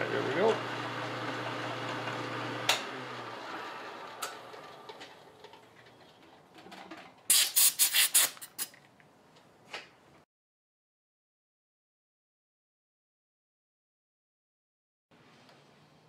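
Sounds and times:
milling machine hum: 0.0s - 5.4s
compressed air hissing blasts: 7.3s - 8.7s.

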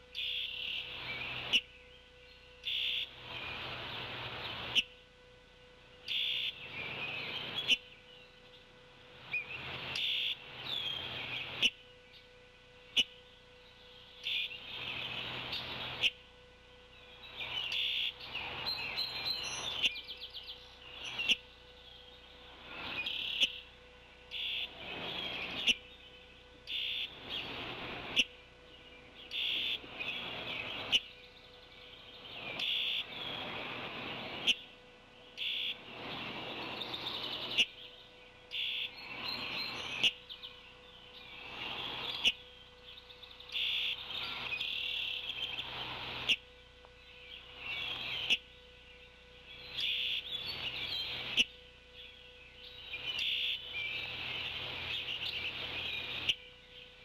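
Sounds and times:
songbirds calling: 0.0s - 57.0s.

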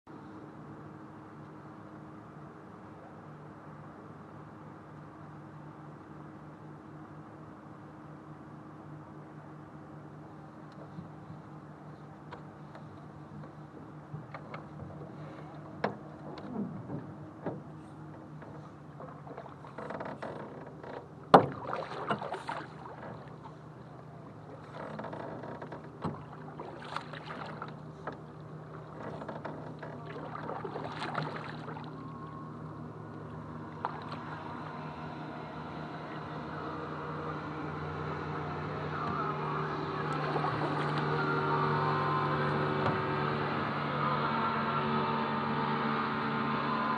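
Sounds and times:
steady low hum: 0.1s - 46.9s
paddle knocking on metal canoe: 18.5s - 23.3s
paddle splashing in water: 18.5s - 32.6s, 33.2s - 35.0s, 38.0s - 43.6s.

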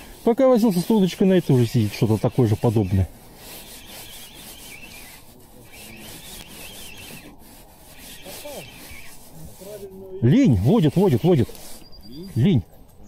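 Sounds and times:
fishing reel whirring: 0.8s - 9.4s.

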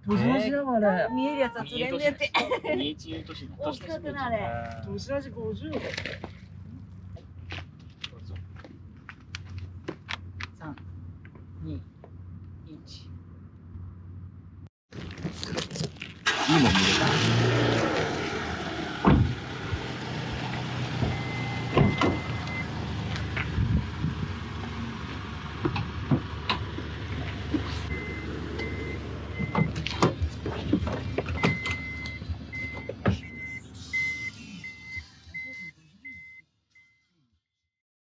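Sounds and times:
door warning beeps: 27.9s - 29.8s, 31.4s - 37.0s.

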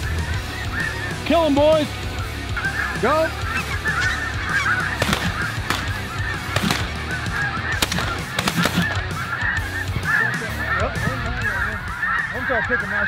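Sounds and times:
geese honking: 0.0s - 13.0s
shotgun fire: 5.0s - 7.0s, 7.8s - 9.0s.

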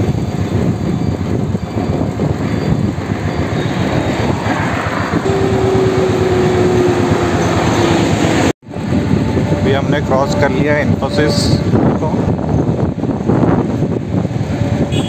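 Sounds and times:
road noise: 0.0s - 15.0s
wind buffeting microphone: 0.0s - 15.0s
steady tone: 3.7s - 10.6s.

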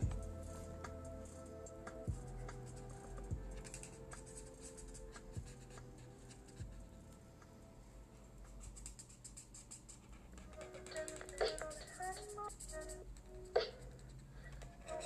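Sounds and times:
faint background music: 0.0s - 15.0s
marker scratching on paper: 2.5s - 6.7s, 8.6s - 13.0s.

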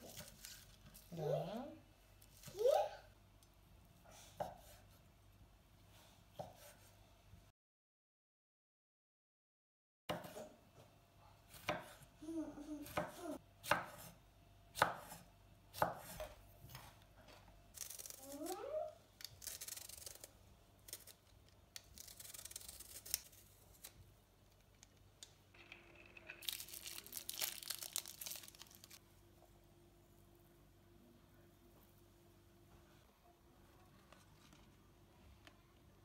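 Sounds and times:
knife chopping on wooden board: 14.8s - 15.2s, 15.8s - 16.9s.

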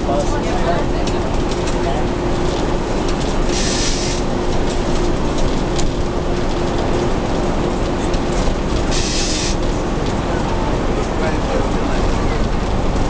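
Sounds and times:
diesel engine running: 0.0s - 13.0s
road and body noise: 0.0s - 13.0s
short hisses: 8.9s - 9.6s.

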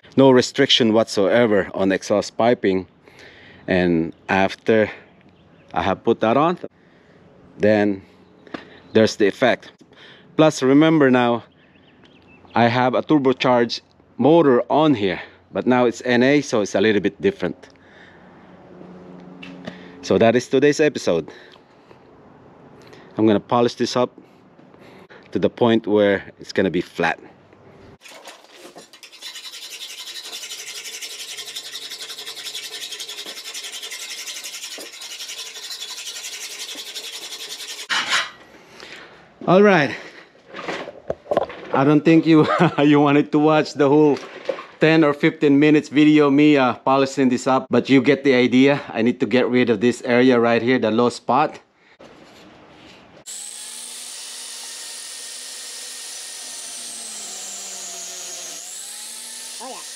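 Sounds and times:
angle grinder grinding metal: 28.0s - 38.3s, 53.3s - 59.9s
abrasive bar scraping metal: 28.3s - 38.5s.

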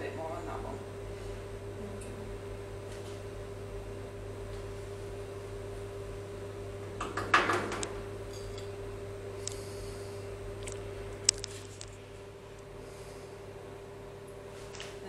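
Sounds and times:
kitchen appliance hum: 0.0s - 15.0s
metal spoons scraping and tapping: 8.3s - 8.7s.

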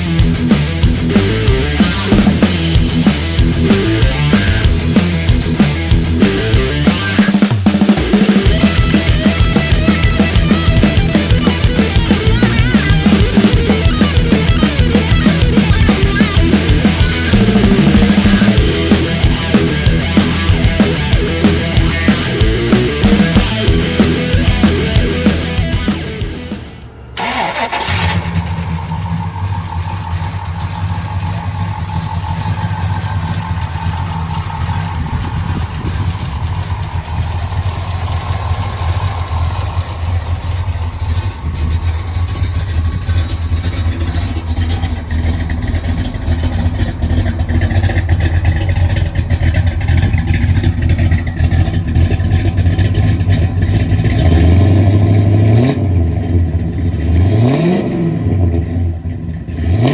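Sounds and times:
car engine running and revving: 0.0s - 59.9s.

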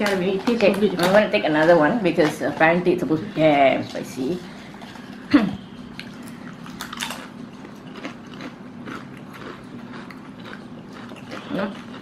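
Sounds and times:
person crunching chip: 5.9s - 12.0s.

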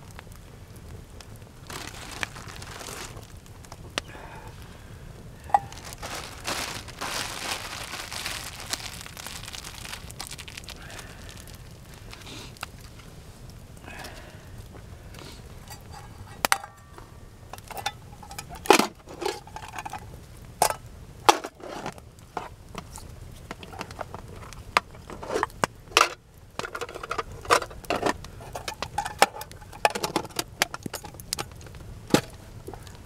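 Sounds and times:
wood fire crackling: 0.0s - 33.0s
metal cup and lid clinking: 15.6s - 16.9s.

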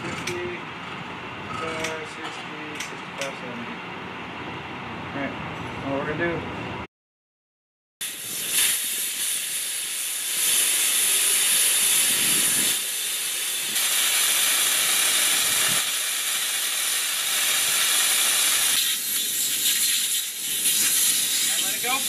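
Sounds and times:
air hissing through tire valve: 8.0s - 22.0s.

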